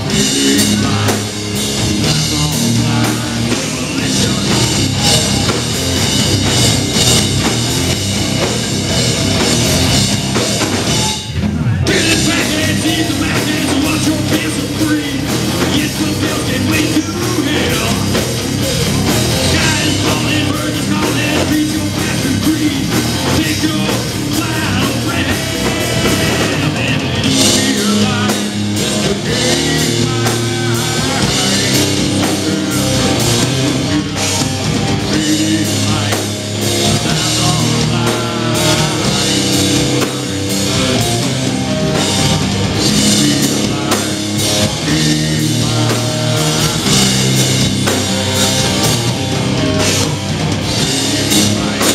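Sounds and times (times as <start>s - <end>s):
person singing: 0.0s - 5.8s, 11.3s - 51.9s
bass guitar: 0.0s - 51.9s
distorted electric guitar: 0.0s - 51.9s
drum kit: 0.0s - 51.9s.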